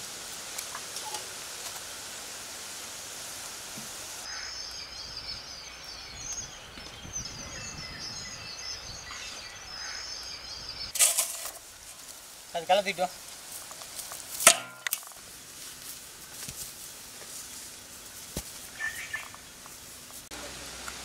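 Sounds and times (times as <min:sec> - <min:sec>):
even outdoor hiss: 0:00.0 - 0:21.0
birds chirping: 0:04.2 - 0:11.0, 0:17.1 - 0:20.2.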